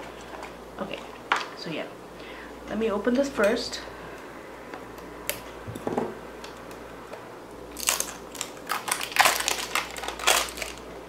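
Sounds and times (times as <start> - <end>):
plastic wrap crinkling: 7.7 - 11.0.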